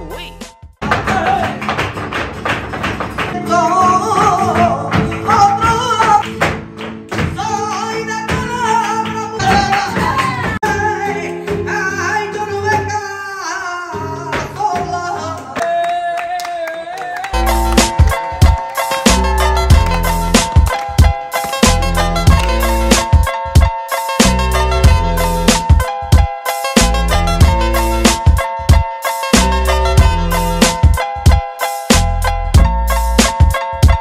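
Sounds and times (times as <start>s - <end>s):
acoustic guitar: 0.0s - 15.6s
dancer's footwork strikes: 0.8s - 8.8s, 17.4s - 23.7s
person singing flamenco: 0.8s - 17.4s
sharp hand clapping: 0.9s - 3.4s, 4.6s - 10.6s, 15.2s - 23.2s.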